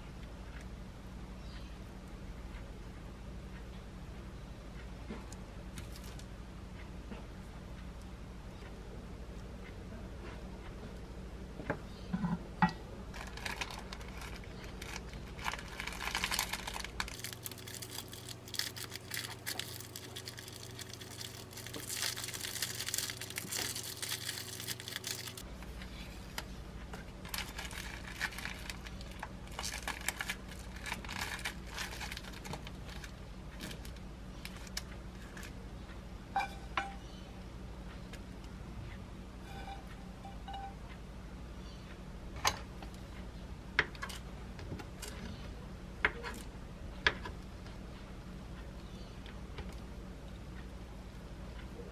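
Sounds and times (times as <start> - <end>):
plastic film wrapper crinkling: 13.1 - 25.5, 27.2 - 35.6.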